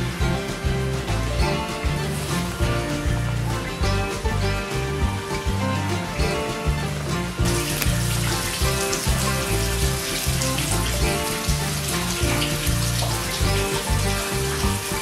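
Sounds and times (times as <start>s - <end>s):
music with steady beat and bass: 0.0s - 15.0s.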